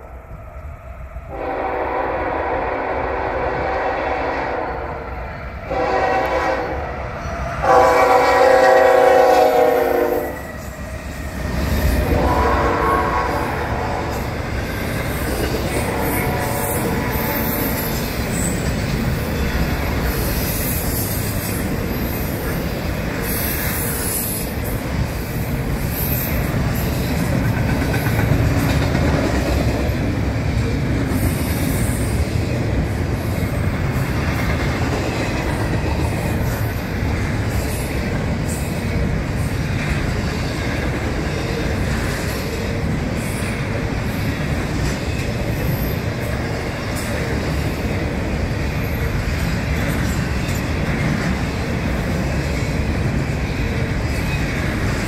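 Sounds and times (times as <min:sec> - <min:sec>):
train wheels rumbling on rails: 0:00.0 - 0:55.0
locomotive horn blasts: 0:01.3 - 0:05.1, 0:05.7 - 0:06.8, 0:07.6 - 0:10.4, 0:12.1 - 0:14.2, 0:15.8 - 0:17.3.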